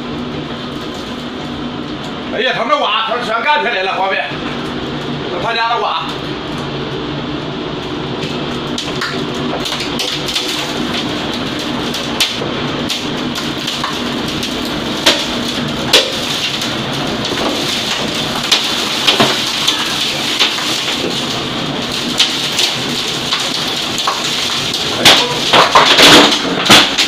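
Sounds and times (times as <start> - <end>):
wind and rain rushing: 6.3 - 27.0
debris knocking on glass: 12.2 - 27.0.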